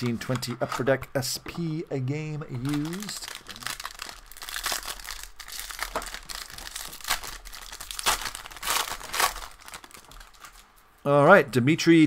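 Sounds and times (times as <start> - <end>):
foil card pack crinkling and tearing: 2.5 - 10.6.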